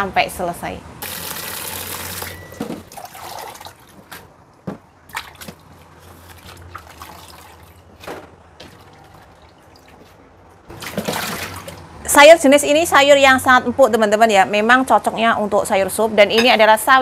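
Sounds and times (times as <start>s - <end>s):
water dripping and trickling: 8.6s - 11.9s.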